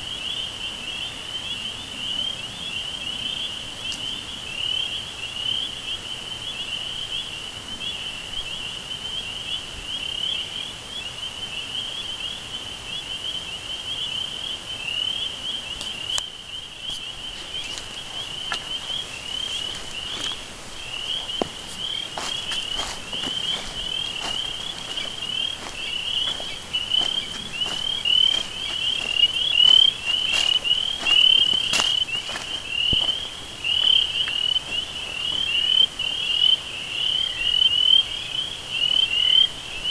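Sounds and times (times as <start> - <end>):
chirping insects: 0.0 - 39.9.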